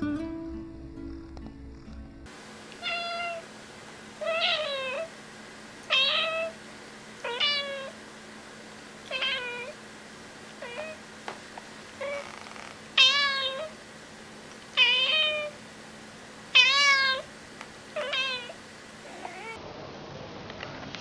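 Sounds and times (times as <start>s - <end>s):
cat meowing: 2.8s - 3.4s, 4.2s - 5.1s, 5.9s - 6.6s, 7.2s - 8.0s, 9.1s - 9.8s, 10.6s - 11.0s, 12.0s - 13.8s, 14.8s - 15.6s, 16.6s - 17.3s, 18.0s - 19.6s.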